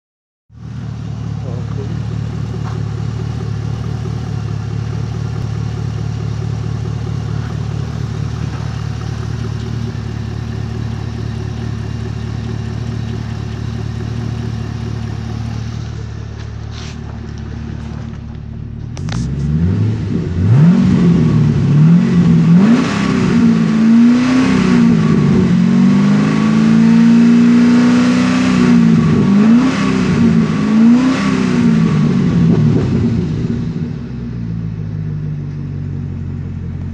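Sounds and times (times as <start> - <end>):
car engine idling and revving: 0.5 - 36.9.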